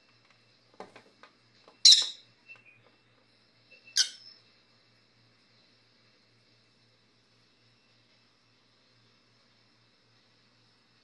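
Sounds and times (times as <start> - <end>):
parrot squawking: 1.9 - 2.2, 4.0 - 4.3.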